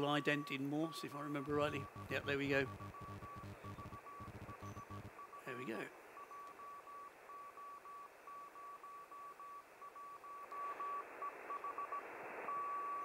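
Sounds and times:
morse code tone: 0.0 - 5.6
receiver hiss: 0.0 - 13.0.

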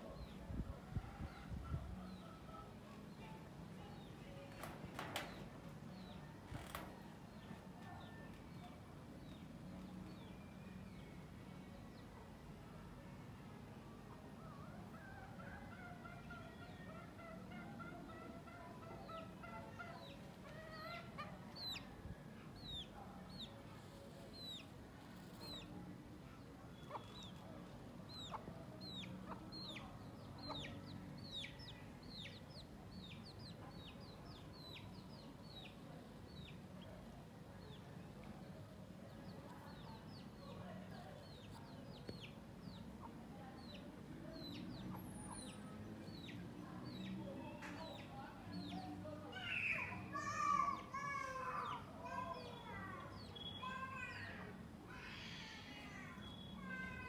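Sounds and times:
chickens clucking: 28.2 - 31.6.

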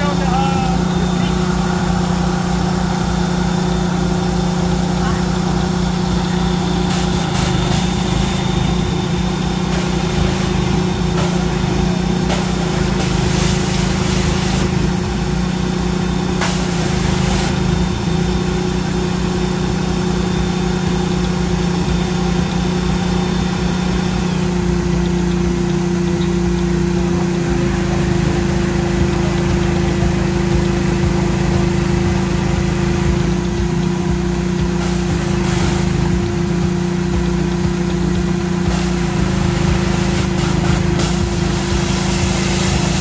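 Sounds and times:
small gasoline engine running: 0.0 - 43.0
hissing bursts of spray: 5.4 - 15.6, 16.2 - 18.0, 34.7 - 36.2, 38.7 - 43.0.

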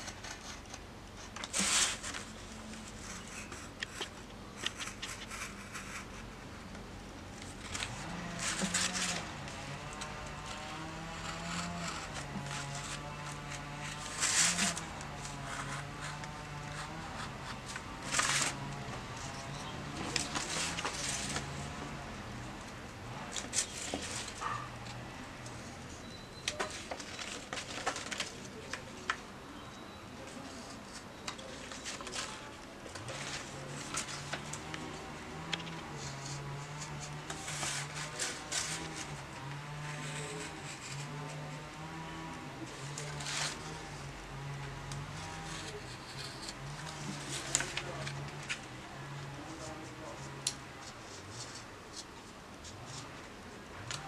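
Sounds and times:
paper rustling: 0.0 - 6.4, 7.3 - 21.8, 23.2 - 25.0, 26.5 - 29.3, 30.3 - 41.7, 42.6 - 43.9, 45.1 - 48.8, 49.4 - 54.0
utility knife slicing paper: 7.6 - 18.7.

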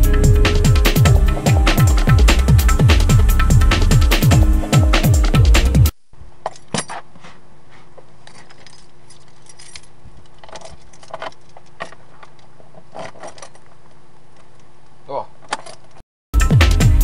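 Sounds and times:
electronic music: 0.0 - 5.9, 16.4 - 17.0
keys jangling: 8.2 - 12.0.

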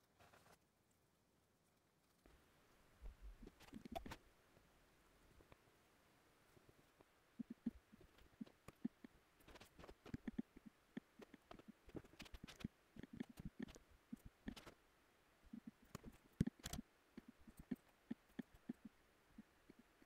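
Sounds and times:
mouse and keyboard clicks: 3.5 - 4.2, 7.4 - 14.8, 15.6 - 19.9.

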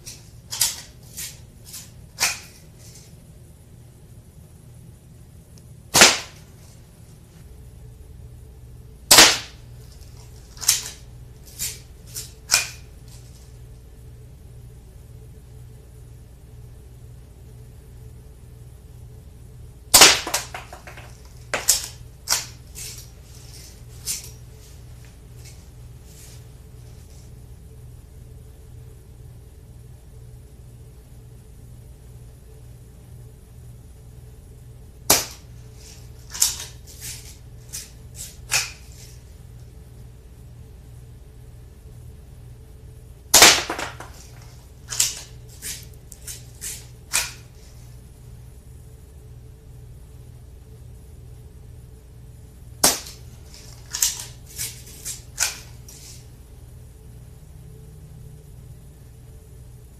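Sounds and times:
air pistol shot snap: 5.9 - 6.4, 9.1 - 9.6.

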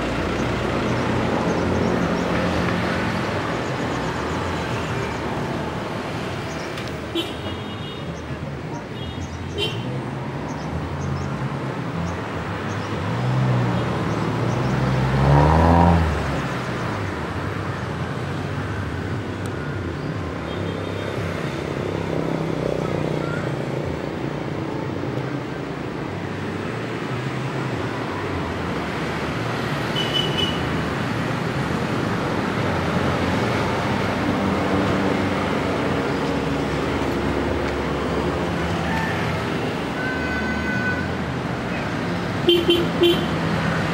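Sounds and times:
engine drone of vehicles: 0.0 - 7.2, 10.1 - 43.9
vehicle engine passing: 14.3 - 16.4.

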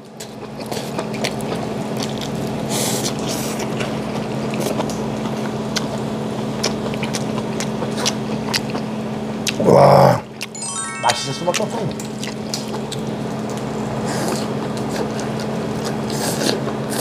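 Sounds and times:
mouth chewing with wet smacks: 0.2 - 9.6.

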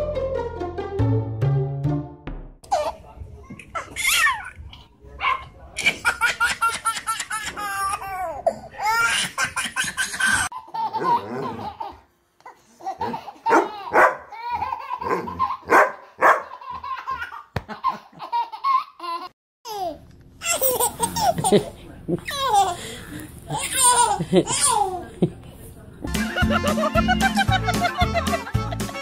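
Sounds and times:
babies laughing: 2.7 - 4.8, 5.8 - 25.2, 26.2 - 29.0.

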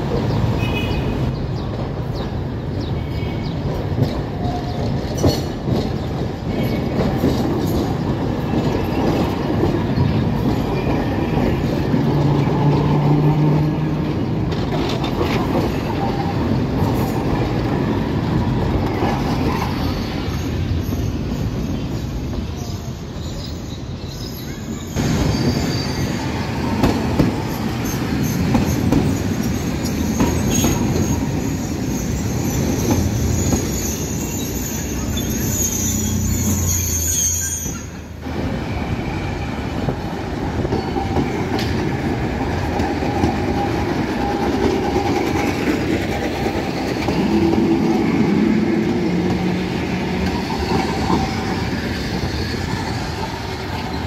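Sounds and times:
tram wheels rumbling and clanking: 0.0 - 54.0
high wheel squeal: 18.9 - 39.9, 46.8 - 54.0.

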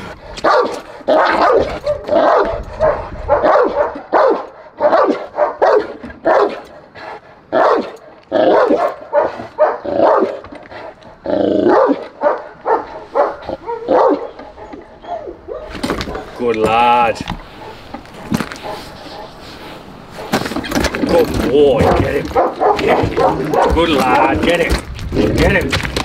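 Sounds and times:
dog barking: 0.4 - 6.6, 7.5 - 10.4, 11.7 - 16.4, 17.5 - 19.5, 20.1 - 20.5, 21.8 - 24.3.

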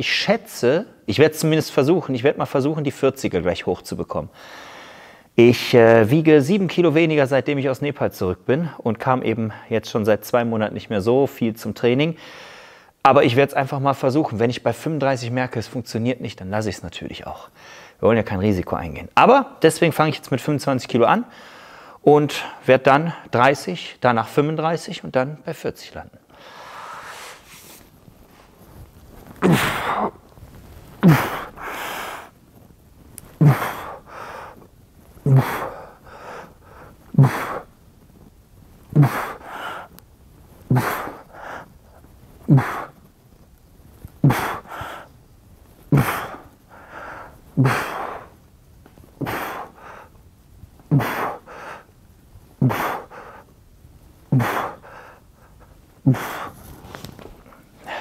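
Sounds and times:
man exhaling with grunts: 29.4 - 30.2, 31.0 - 32.3, 33.4 - 34.0, 35.2 - 35.9, 37.1 - 37.7, 38.9 - 39.8, 40.7 - 41.2, 42.5 - 43.0, 45.9 - 46.4, 50.9 - 51.4, 54.3 - 54.8, 56.0 - 56.5.

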